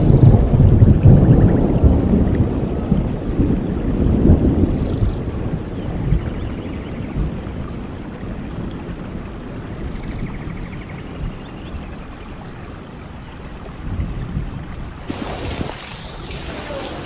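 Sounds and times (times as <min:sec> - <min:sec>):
heavy rain falling: 0:00.0 - 0:06.9, 0:15.1 - 0:17.0
cars driving through water: 0:15.1 - 0:17.0
tyres hissing on wet road: 0:15.1 - 0:17.0.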